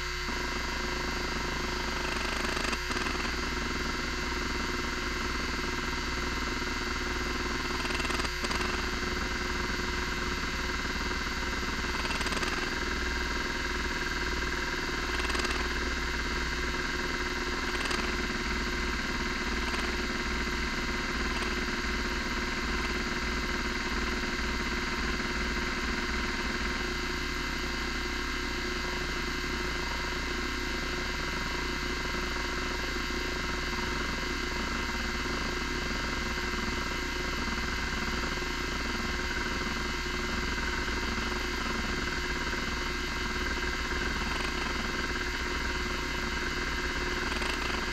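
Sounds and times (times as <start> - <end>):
hard drive spindle whine: 0.0 - 47.9
stepper motor moving heads: 33.8 - 47.9.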